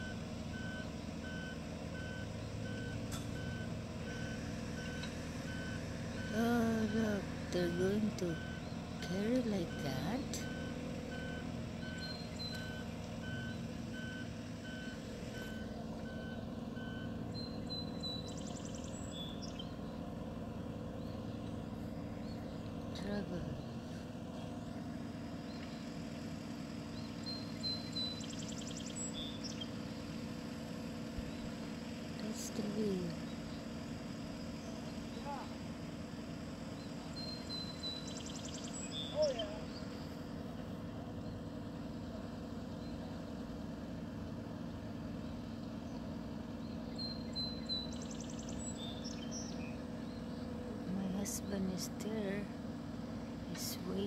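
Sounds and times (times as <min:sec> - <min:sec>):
boat hoist engine running: 0:00.0 - 0:54.0
birds chirping: 0:00.1 - 0:54.0
low background rumble: 0:05.4 - 0:54.0
small bird chirping: 0:17.3 - 0:20.0, 0:26.8 - 0:29.9, 0:36.7 - 0:40.2, 0:45.2 - 0:50.6.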